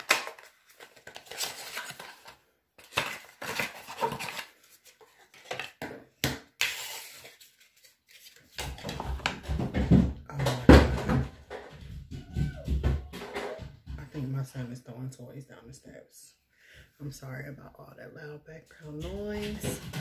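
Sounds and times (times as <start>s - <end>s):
packaging clicking and rustling: 0.0s - 5.8s.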